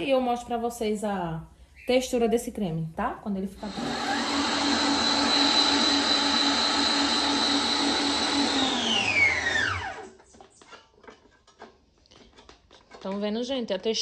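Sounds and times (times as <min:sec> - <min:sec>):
electric mixer whining: 0:03.6 - 0:10.3.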